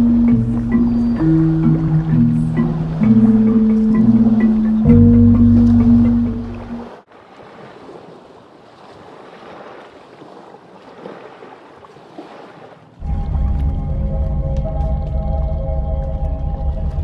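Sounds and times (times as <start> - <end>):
music: 0.0 - 6.8, 13.0 - 17.0
small waves washing on sand: 5.5 - 13.0.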